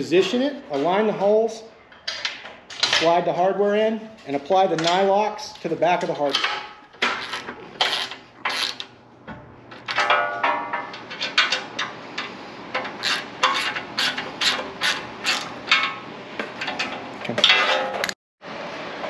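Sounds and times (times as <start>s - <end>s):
hand ratchet clicking: 13.0s - 15.5s.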